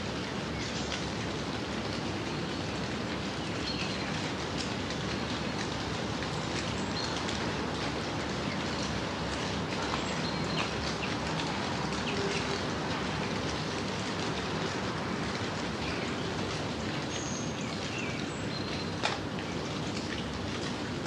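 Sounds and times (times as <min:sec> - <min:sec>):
gentle rain falling: 0:00.0 - 0:21.0
raindrop tap: 0:04.1 - 0:15.6, 0:18.8 - 0:20.8.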